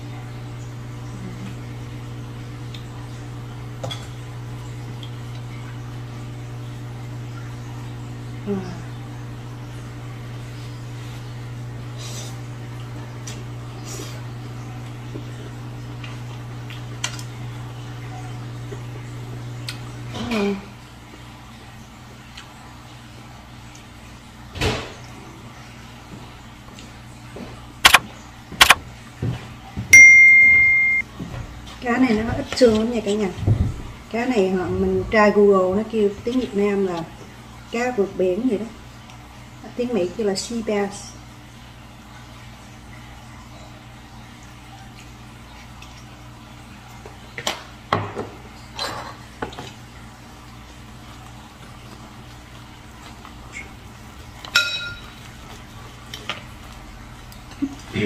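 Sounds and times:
sharp mouse clicks: 27.8 - 28.0
low hum: 30.0 - 31.0
tableware clinking: 30.0 - 31.0, 54.5 - 55.2.

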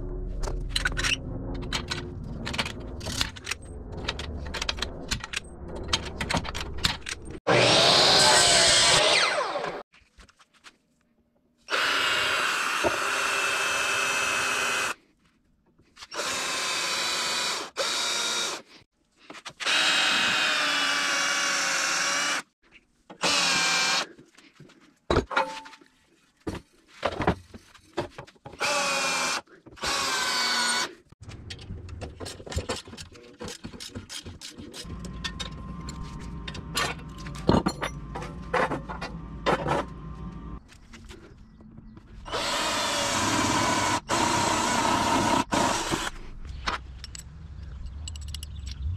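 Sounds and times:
cordless drill running: 11.7 - 15.0, 16.1 - 18.7, 19.6 - 22.4, 23.2 - 24.0, 28.6 - 30.9, 42.2 - 46.1.

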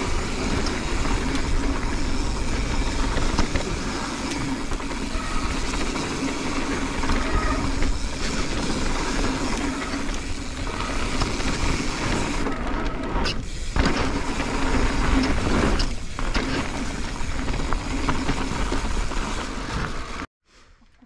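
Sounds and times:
bike clicks and knocks: 0.0 - 20.2
tyres rolling over grit: 0.0 - 20.2.

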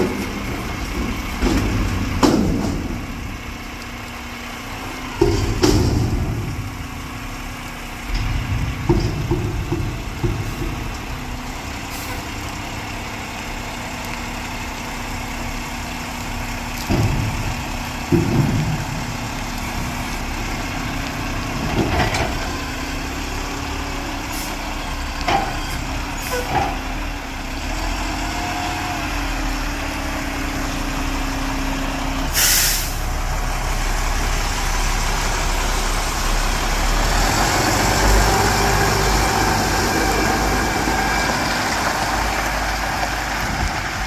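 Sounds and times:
metal clanks of dumpster: 0.0 - 3.4, 5.2 - 6.8, 8.0 - 11.0, 16.8 - 19.2, 21.6 - 22.6, 25.2 - 27.0
diesel truck engine: 0.0 - 44.0
air brake hiss: 32.3 - 33.1.

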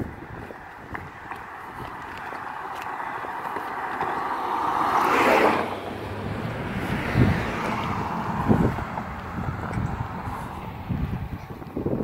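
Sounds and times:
car driving past on asphalt: 1.9 - 11.2.

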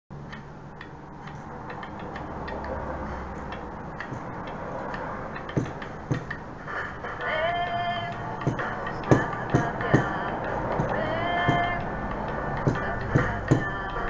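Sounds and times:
steady ticking: 0.1 - 14.0
low room hum: 0.2 - 14.0
loud thumps: 5.5 - 6.5, 12.6 - 13.9.

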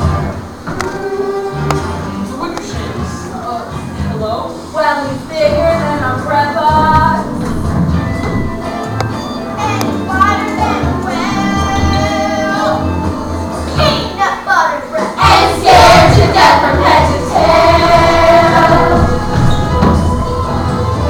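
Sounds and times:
children's chorus singing: 0.7 - 2.1, 9.6 - 13.1, 15.0 - 21.0
instrumental accompaniment: 5.3 - 14.2, 15.2 - 21.0.

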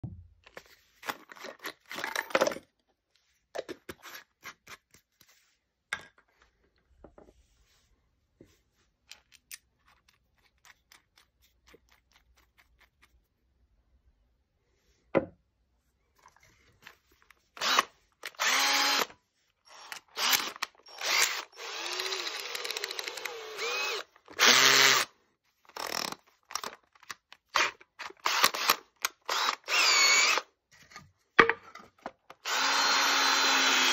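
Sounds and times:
cordless drill motor bursts: 17.6 - 19.1, 19.7 - 25.1, 27.6 - 30.5, 32.4 - 33.9.

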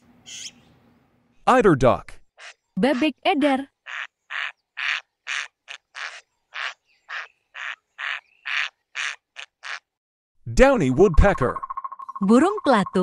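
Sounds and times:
duck quacking: 3.9 - 9.9.

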